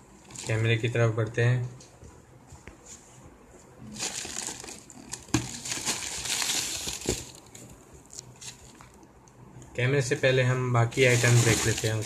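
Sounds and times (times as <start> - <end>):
plastic packing crinkling: 3.9 - 8.9, 10.9 - 12.0.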